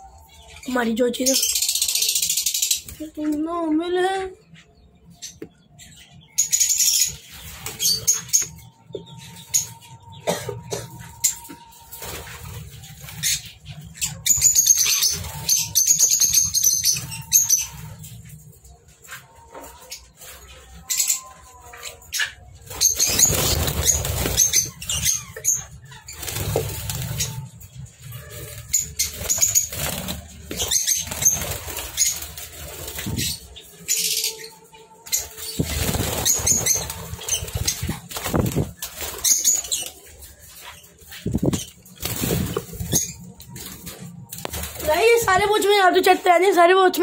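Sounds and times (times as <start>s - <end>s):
parrots flapping wings: 22.7s - 25.2s, 28.7s - 33.4s, 35.5s - 40.0s, 41.2s - 45.3s.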